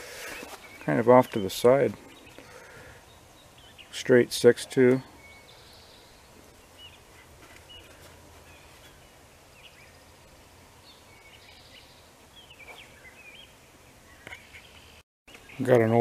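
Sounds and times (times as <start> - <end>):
soft rustles: 0.0 - 0.9
low outdoor background noise: 0.0 - 16.0
faint songbird chirps: 0.2 - 16.0.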